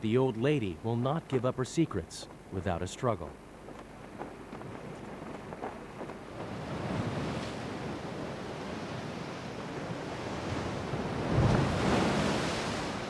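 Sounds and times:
wind: 0:00.0 - 0:13.0
rough sea breaking on rocks: 0:06.3 - 0:13.0
wave crashing: 0:06.3 - 0:13.0.

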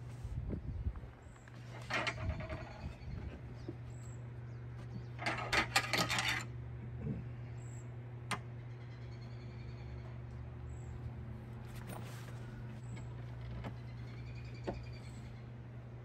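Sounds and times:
steady low hum: 0:00.0 - 0:16.0
metal buckles clinking and rattling: 0:05.2 - 0:06.5.

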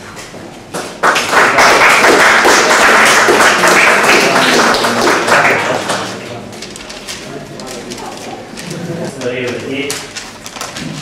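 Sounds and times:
audience applauding: 0:00.8 - 0:06.2.

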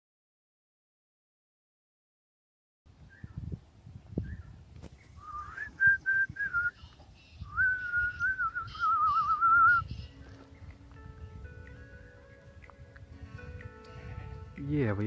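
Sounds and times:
person whistling a tune: 0:05.2 - 0:06.8, 0:07.5 - 0:10.0.

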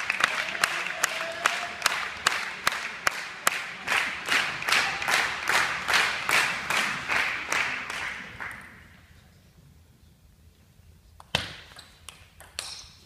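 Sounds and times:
crowd clapping in unison: 0:00.0 - 0:09.0.

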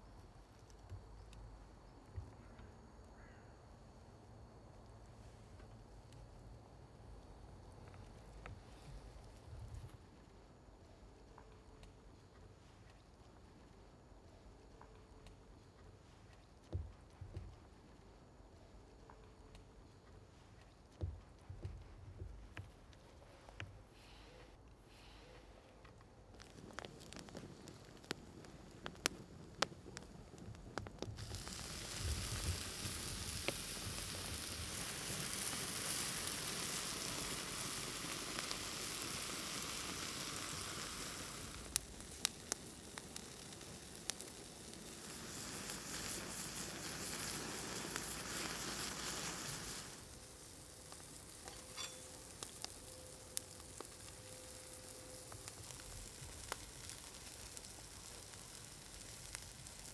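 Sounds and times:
wood fire crackling and popping: 0:00.0 - 0:02.7, 0:04.5 - 0:23.9, 0:25.7 - 0:59.9
steak sizzling on grill: 0:31.0 - 0:59.9.

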